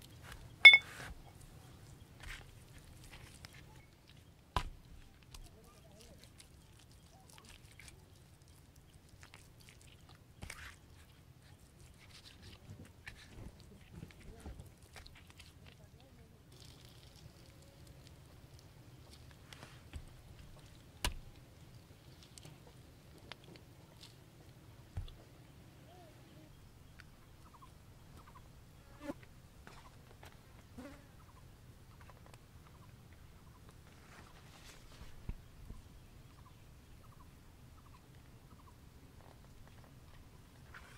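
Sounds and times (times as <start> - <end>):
wet squishing of hands rubbing paste: 2.2 - 24.2.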